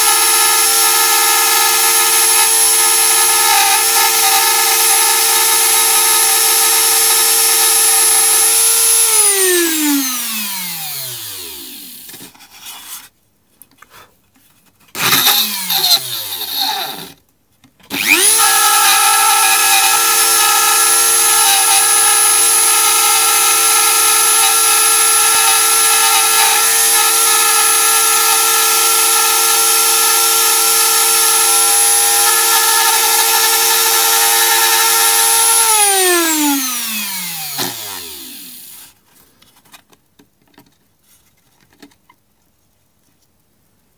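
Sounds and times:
rotary tool whining: 0:00.0 - 0:12.3, 0:15.0 - 0:17.2, 0:17.9 - 0:38.9.

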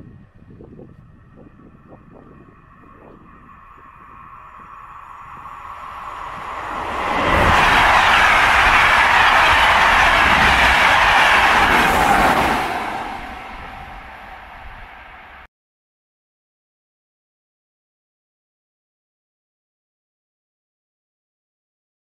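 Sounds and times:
passenger train passing: 0:00.1 - 0:15.5.

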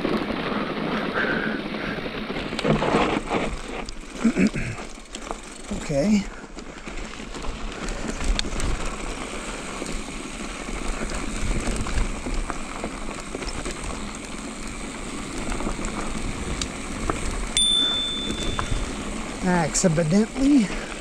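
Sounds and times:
bike tyres rolling over dirt and rock: 0:00.0 - 0:21.0
handlebar bell ringing: 0:17.6 - 0:19.0.

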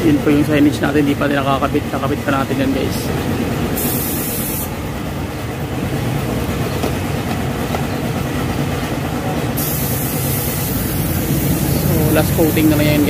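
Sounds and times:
hiss: 0:03.8 - 0:04.8, 0:09.6 - 0:13.0
low mechanical rumble: 0:10.0 - 0:13.0.

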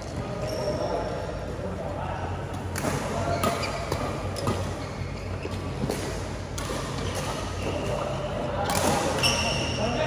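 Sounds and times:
badminton rackets hitting shuttlecock: 0:05.4 - 0:09.7.

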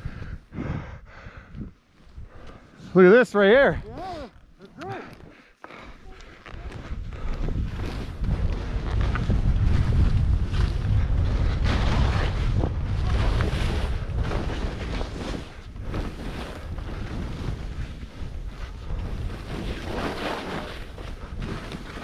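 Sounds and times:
wind buffeting microphone: 0:06.4 - 0:20.0.

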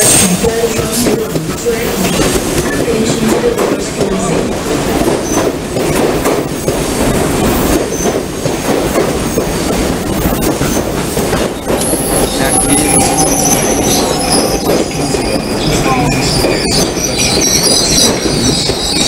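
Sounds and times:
train wheels rumbling: 0:00.0 - 0:19.0
high-pitched wheel squeal: 0:11.6 - 0:19.0.

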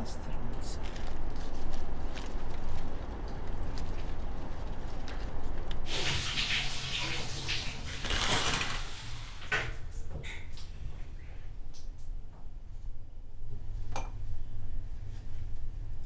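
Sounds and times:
shower curtain rings scraping: 0:05.9 - 0:09.5.

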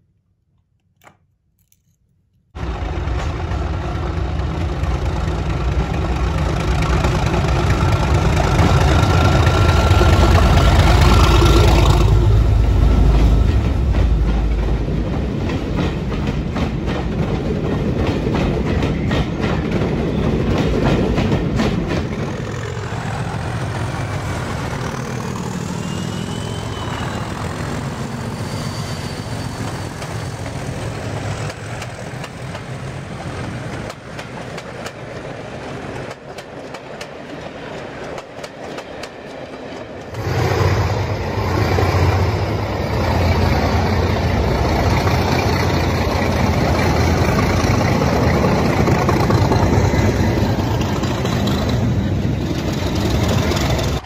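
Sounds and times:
model train rumbling: 0:02.6 - 0:54.0
wheels clicking over rail joints: 0:12.8 - 0:25.4, 0:30.0 - 0:40.7, 0:41.6 - 0:54.0.

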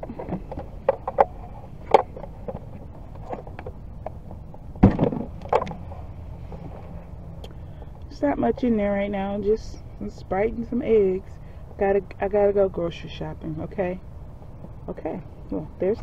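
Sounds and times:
loud thump: 0:04.8 - 0:05.3.

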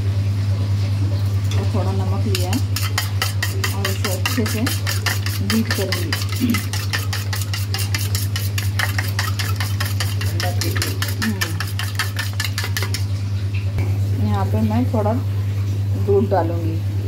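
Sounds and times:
steady low hum: 0:00.0 - 0:17.0
egg beaten against metal plate: 0:02.2 - 0:13.2.

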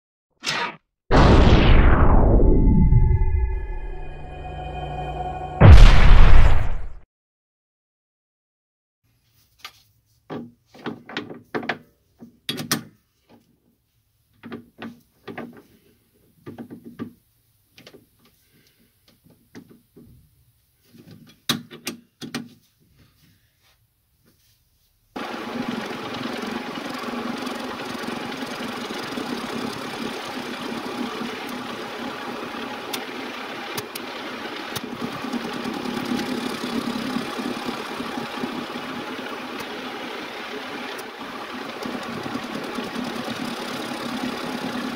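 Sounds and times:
lathe running: 0:25.2 - 0:44.9.

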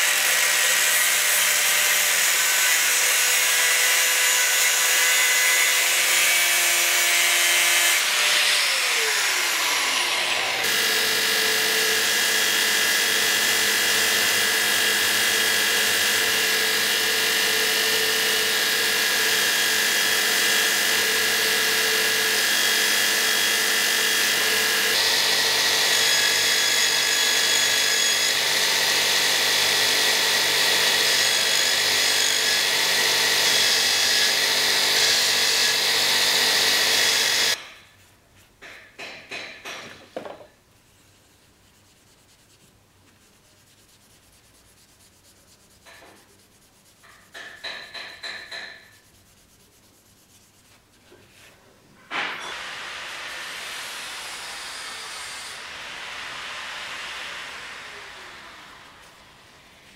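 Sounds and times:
angle grinder grinding metal: 0:00.0 - 0:37.6
belt grinder running: 0:06.8 - 0:37.6.

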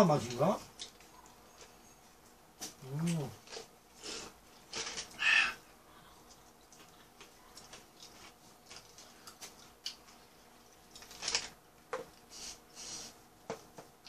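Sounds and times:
chewing: 0:06.0 - 0:11.4
paper wrappers rustling: 0:07.2 - 0:11.6.

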